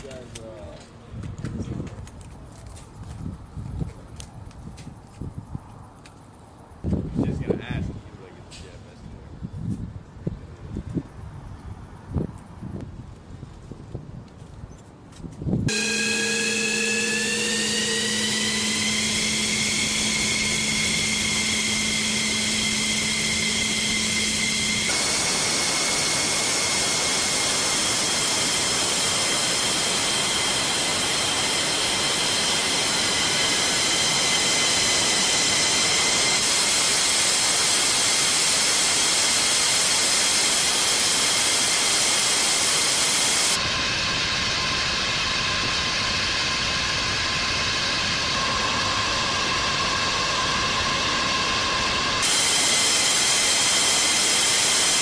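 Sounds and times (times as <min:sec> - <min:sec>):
jet turbine whine: 0:15.7 - 0:55.0
rush of jet noise: 0:15.7 - 0:55.0.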